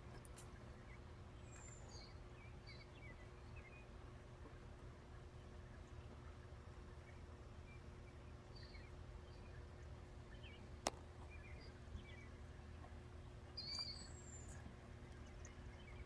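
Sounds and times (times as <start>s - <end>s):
steady low hum: 0.0s - 16.0s
bird chirps: 0.4s - 3.9s, 7.0s - 9.7s, 13.5s - 16.0s
whistled chirp: 13.6s - 14.5s.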